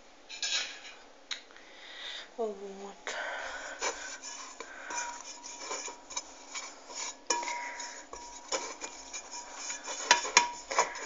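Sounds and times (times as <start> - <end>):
knocks and scrapes on metal bowl: 3.8 - 11.0
metal bowl ringing: 7.3 - 8.5.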